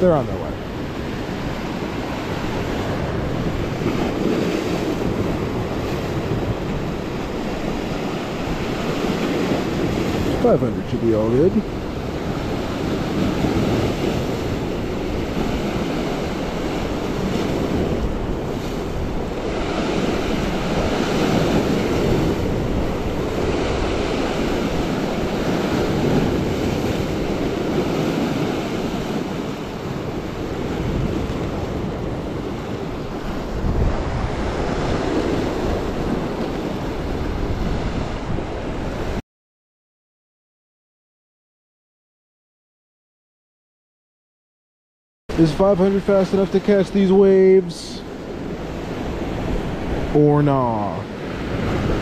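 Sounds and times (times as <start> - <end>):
waves washing against rocky shore: 0.0 - 39.2, 45.3 - 52.0
wind buffeting microphone: 0.0 - 39.2, 51.1 - 52.0.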